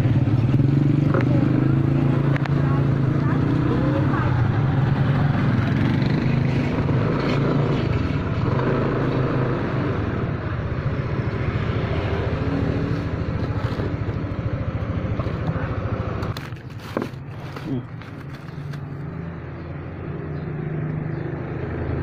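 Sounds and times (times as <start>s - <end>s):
motorcycle engine running: 0.0s - 22.0s
road and wind noise: 0.0s - 22.0s.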